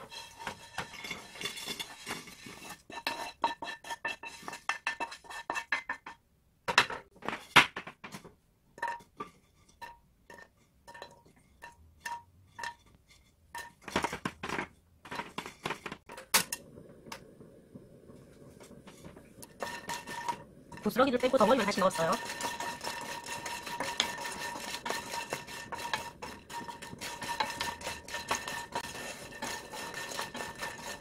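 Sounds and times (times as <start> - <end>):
dry noodles clinking into a pan: 19.4 - 31.0.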